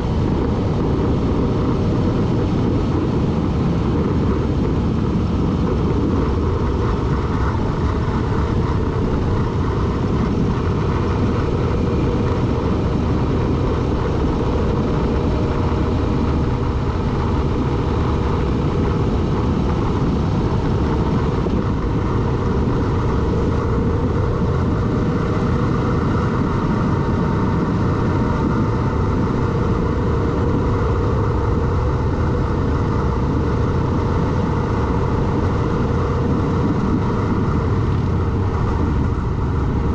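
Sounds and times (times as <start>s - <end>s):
vehicle driving road noise: 0.0s - 39.9s.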